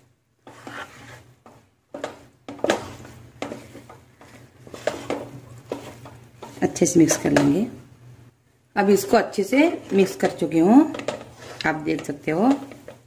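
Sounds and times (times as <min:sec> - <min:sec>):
wooden spatula scraping rice in pot: 0:00.4 - 0:07.7, 0:09.6 - 0:13.0.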